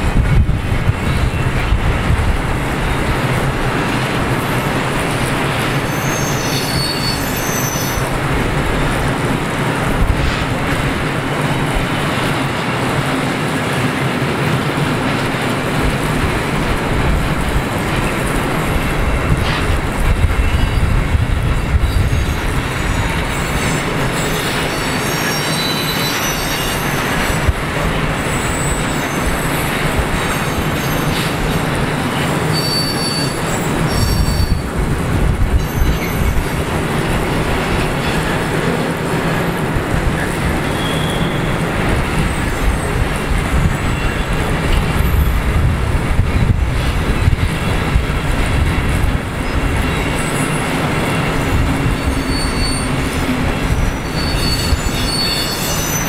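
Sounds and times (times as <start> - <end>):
train wagons rumbling and rattling: 0.0 - 56.0
high wheel squeal: 5.6 - 8.1, 21.8 - 27.4, 28.1 - 34.7, 35.5 - 36.6, 40.6 - 43.0, 49.4 - 56.0.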